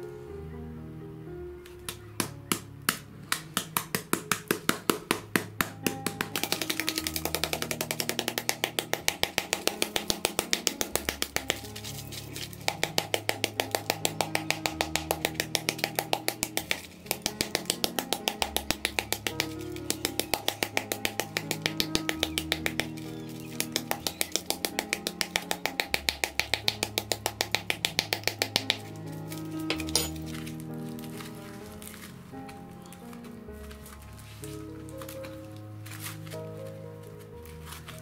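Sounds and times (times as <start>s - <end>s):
background music with low notes: 0.0s - 38.0s
spoon tapping on foil ball: 1.9s - 31.3s.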